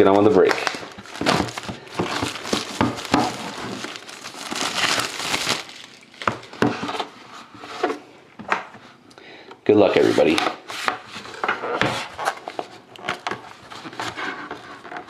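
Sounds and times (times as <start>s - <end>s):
plastic shrink wrap crinkling: 0.0s - 7.0s.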